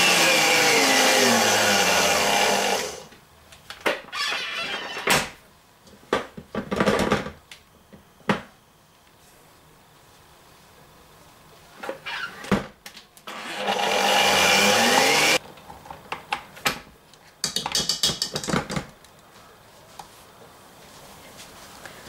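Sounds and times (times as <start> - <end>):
stand mixer motor whirring: 0.0 - 3.0, 13.4 - 15.4.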